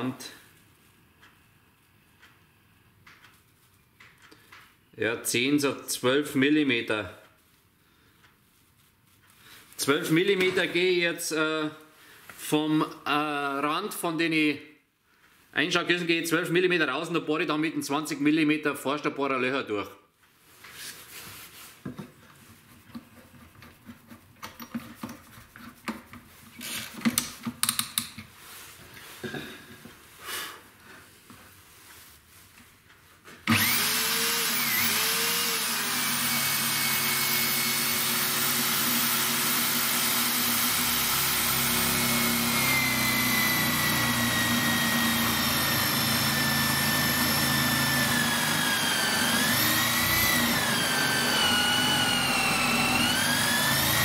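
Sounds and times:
knocks and handling sounds: 20.2 - 30.1
drill boring through plywood: 26.6 - 26.9, 33.4 - 54.0.

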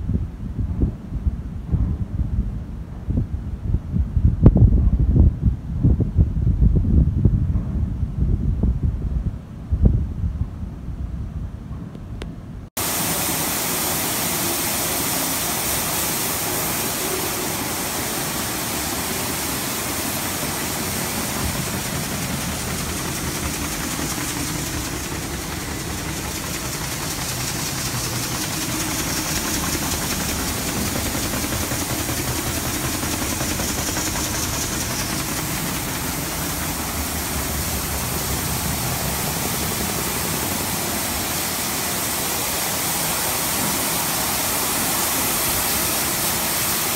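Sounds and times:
grain conveyor machinery running: 12.8 - 46.9.

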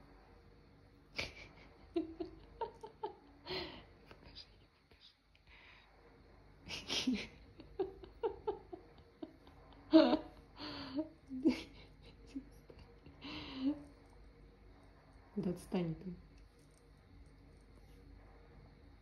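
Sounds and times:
person giggling breathily: 1.2 - 5.1, 6.7 - 14.1.

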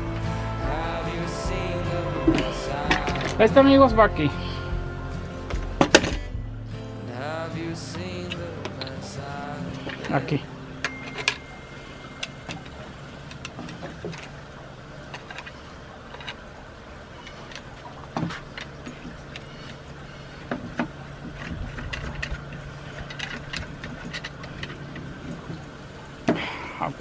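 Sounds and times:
steady low hum: 0.0 - 27.0
plastic and metal parts clicking: 12.2 - 14.4, 15.1 - 16.5, 17.2 - 26.4.

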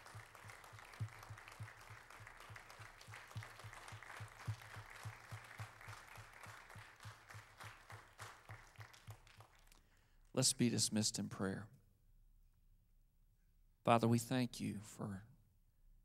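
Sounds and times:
faint applause: 0.0 - 9.9.

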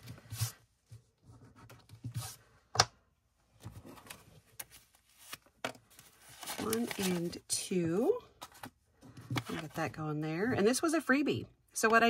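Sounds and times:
paper bills rustling: 4.0 - 7.4.

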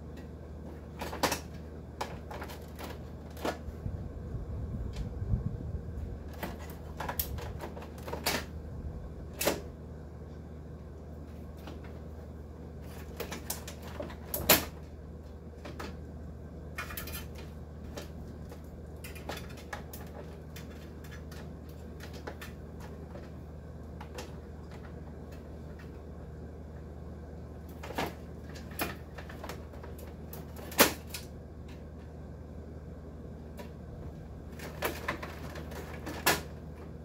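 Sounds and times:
steady low hum: 0.0 - 37.0
metal and plastic parts clattering: 0.7 - 3.7, 6.3 - 8.5, 12.8 - 14.9, 16.7 - 26.0, 27.6 - 31.8, 34.5 - 36.7.

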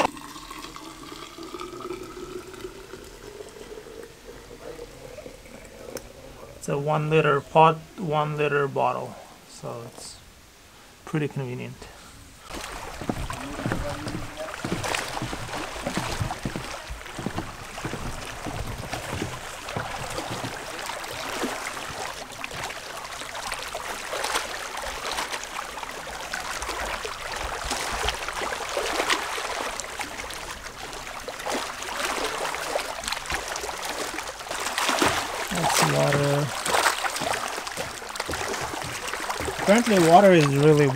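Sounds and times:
small water splashes: 0.0 - 6.5, 12.4 - 40.9
waves lapping on rocks: 12.4 - 40.9.

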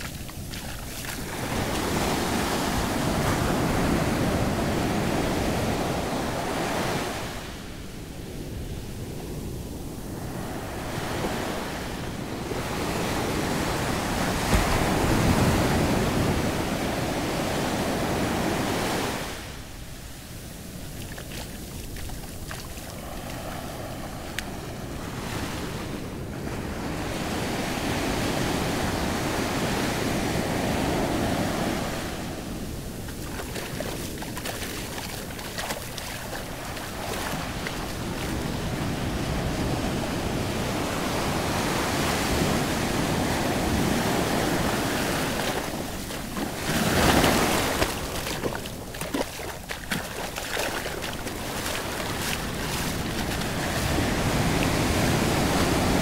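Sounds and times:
surf washing up a sandy shore: 0.0 - 56.0
wind buffeting microphone: 20.1 - 56.0.

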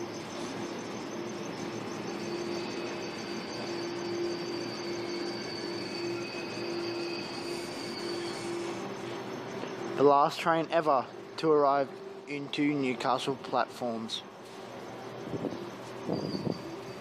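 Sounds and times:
wheels on rail: 0.0 - 10.9, 14.4 - 17.0
high electrical whine: 0.0 - 17.0.

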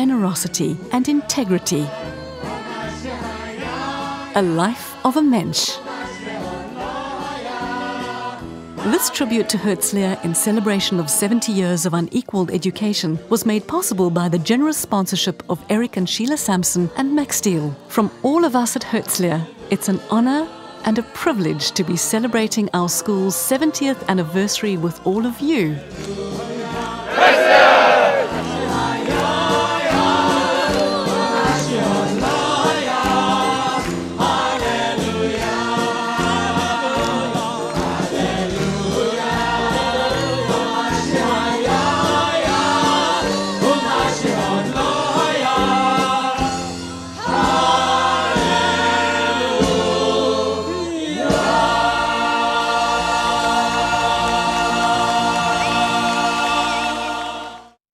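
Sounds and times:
choir singing with band: 1.0 - 5.1, 5.7 - 11.1, 25.8 - 57.8
steady drum beat: 47.2 - 50.2.

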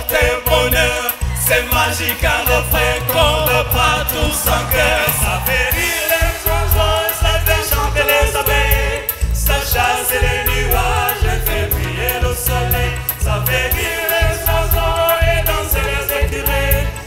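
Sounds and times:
choir singing: 0.0 - 17.0
high percussion beat: 0.0 - 17.0
keyboard: 0.0 - 17.0
lead singer singing: 0.0 - 17.0
bass line: 0.3 - 17.0.

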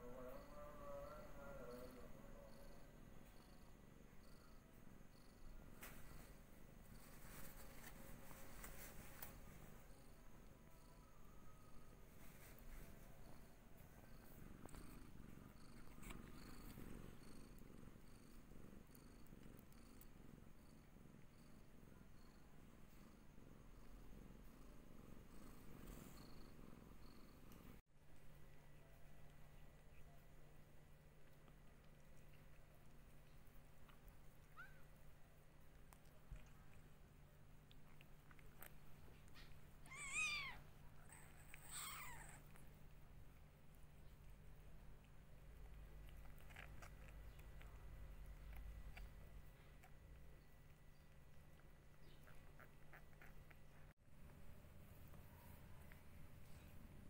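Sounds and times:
cat purring: 0.0 - 57.0
kitten mewing: 39.9 - 42.4.

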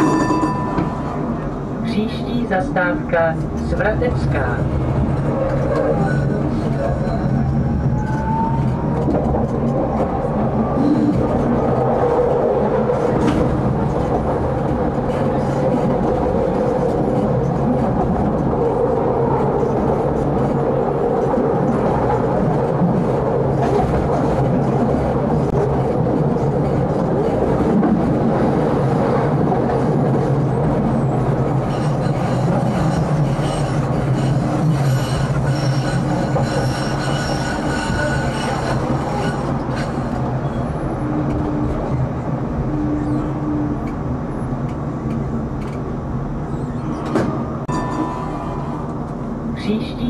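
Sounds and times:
tram wheels rumbling on rails: 0.0 - 50.0
tram wheels squealing: 31.0 - 42.0, 42.6 - 43.9, 46.4 - 49.0.

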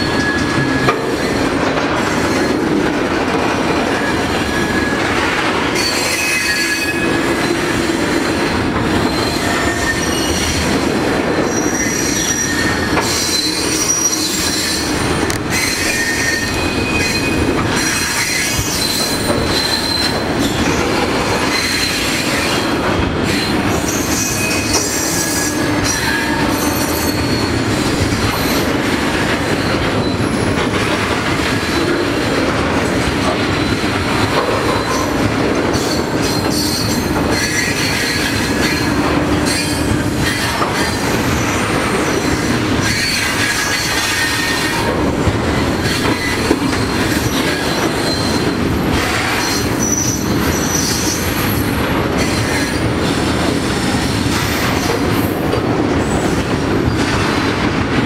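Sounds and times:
wheel squeals: 0.0 - 1.5, 11.3 - 20.8, 45.6 - 51.6
freight train wheels rumbling: 0.0 - 58.0.

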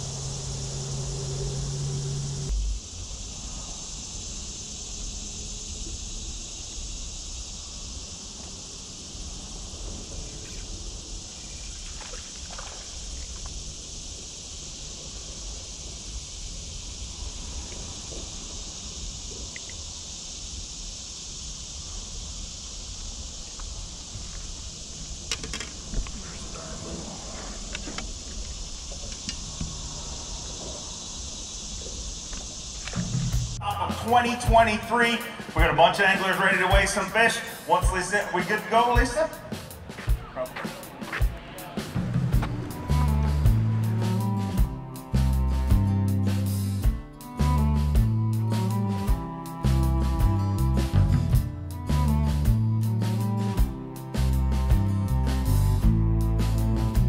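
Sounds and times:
low rumble: 0.0 - 3.9, 41.4 - 46.3
insects droning in trees: 0.0 - 57.0.

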